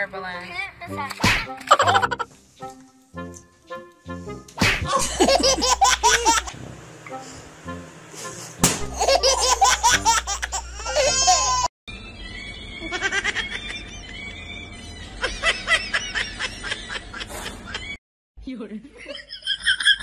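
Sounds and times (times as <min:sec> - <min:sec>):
background music: 0:00.8 - 0:04.9, 0:07.1 - 0:10.2
sharp smacks: 0:01.1 - 0:01.7, 0:04.5 - 0:05.0, 0:08.6 - 0:08.9
children laughing and squealing: 0:10.2 - 0:16.2.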